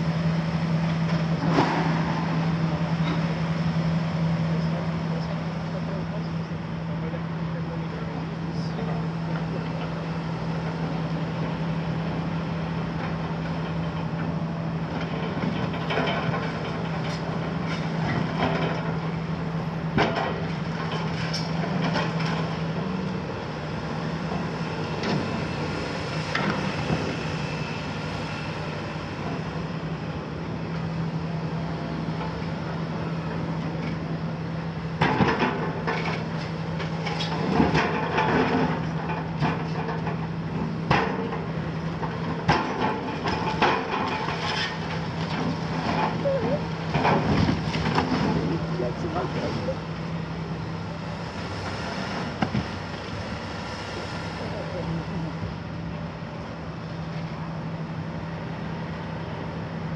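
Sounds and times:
excavator diesel engine humming: 0:00.0 - 0:59.9
masonry cracking and clattering: 0:40.9 - 0:49.4.

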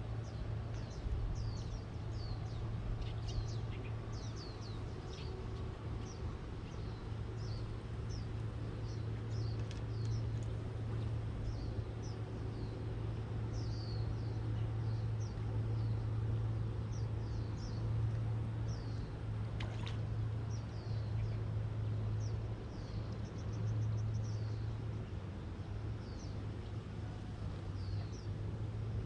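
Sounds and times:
steady low hum: 0:00.0 - 0:29.0
small birds chirping: 0:00.1 - 0:21.5, 0:22.1 - 0:25.2, 0:26.0 - 0:28.4.

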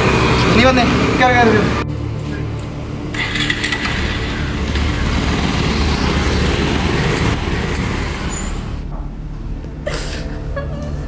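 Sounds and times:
motorcycle engine running: 0:00.0 - 0:08.9
woman sobbing: 0:09.8 - 0:11.0.

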